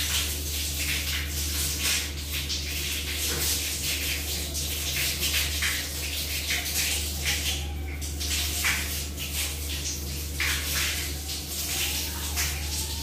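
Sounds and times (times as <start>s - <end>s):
shower water splashing: 0.0s - 13.0s.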